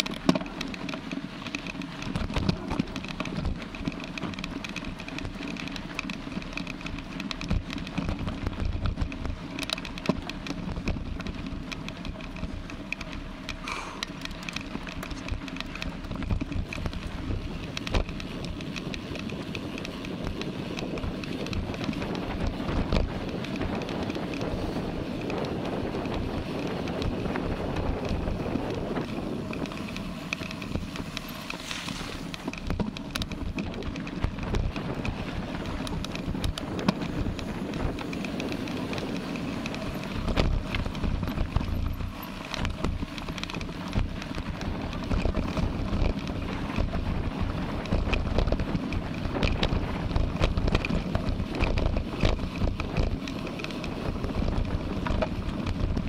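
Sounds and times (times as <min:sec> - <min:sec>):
bike rattling and knocking: 0:00.0 - 0:56.0
bike tyres rolling: 0:00.0 - 0:56.0
wind buffeting microphone: 0:00.0 - 0:56.0.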